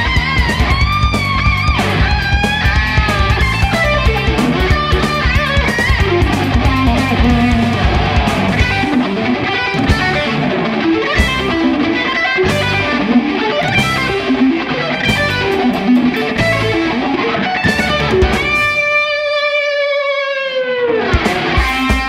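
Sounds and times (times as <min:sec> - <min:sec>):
bass: 0:00.0 - 0:09.1, 0:09.8 - 0:17.0, 0:17.6 - 0:18.8
programmed drums: 0:00.0 - 0:18.9, 0:21.0 - 0:22.0
distorted electric guitar riff: 0:00.0 - 0:22.0
guitar note diving in pitch: 0:00.0 - 0:22.0.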